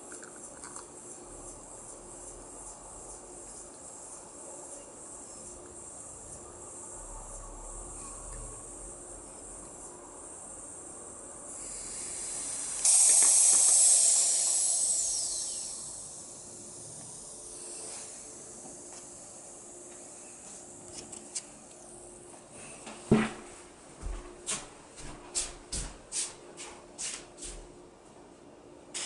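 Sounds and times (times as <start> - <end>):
gas hiss with falling whistle: 11.5 - 20.4.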